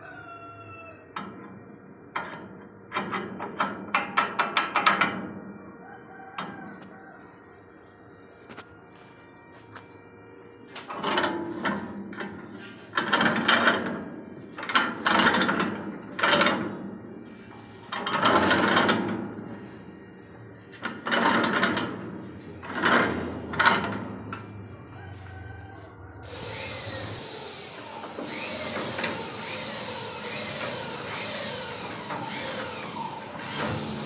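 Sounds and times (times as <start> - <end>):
steering gears grinding: 26.2 - 34.0.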